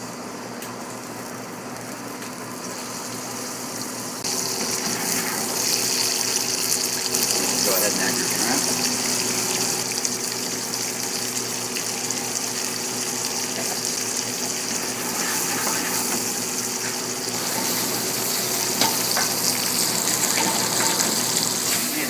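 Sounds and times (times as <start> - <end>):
food sizzling in butter: 2.6 - 22.0
pan clattering: 15.2 - 21.8.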